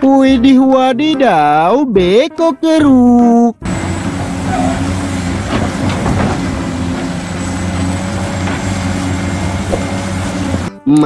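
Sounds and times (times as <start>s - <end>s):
knocks and clatter: 3.6s - 10.7s
excavator diesel engine running: 3.6s - 10.8s.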